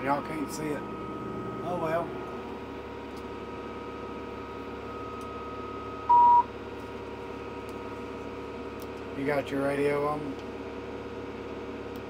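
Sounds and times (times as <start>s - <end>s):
tractor engine drone: 0.0s - 12.0s
short electronic beep: 4.8s - 6.5s.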